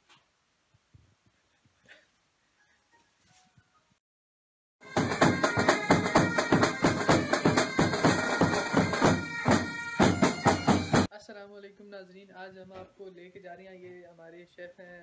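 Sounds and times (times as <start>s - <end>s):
music with fast drum beat: 4.8s - 11.1s.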